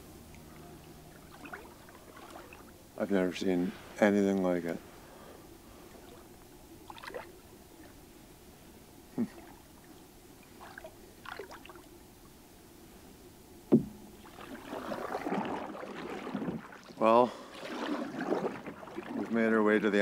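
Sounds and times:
water swishing: 0.0 - 12.0, 13.7 - 20.0
paddle splashes and drips: 0.3 - 2.8, 5.7 - 8.0, 9.3 - 11.9, 13.7 - 20.0
paddle knocking against canoe: 13.7 - 16.9.

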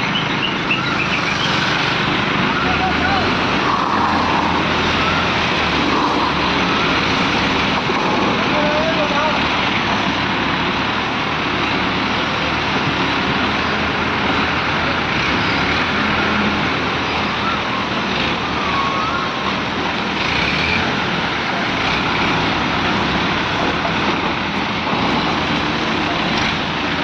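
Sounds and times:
crane diesel engines running: 0.0 - 27.0.

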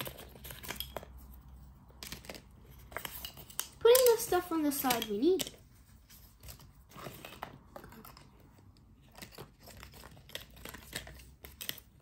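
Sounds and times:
light clicks of craft pieces: 2.0 - 5.7
crinkling of plastic: 2.0 - 12.0.

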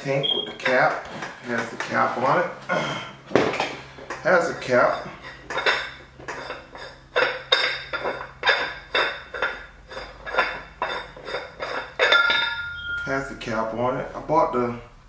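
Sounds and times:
metal cap clinking on threads: 7.2 - 13.1
brief metal ringing: 12.1 - 13.1.

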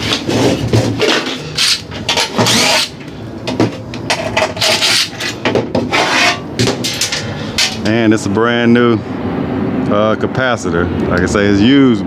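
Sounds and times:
metal parts scraping and knocking: 0.0 - 7.9.

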